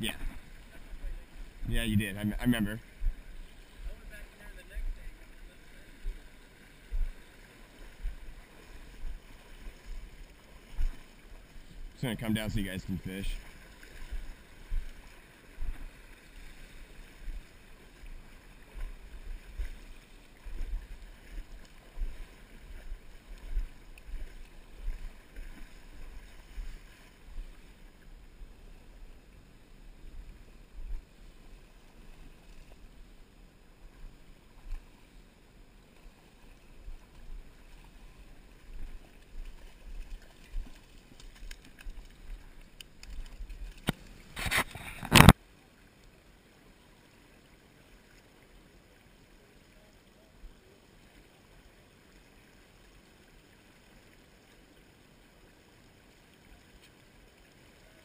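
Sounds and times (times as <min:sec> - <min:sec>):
river water rumbling: 0:00.0 - 0:58.0.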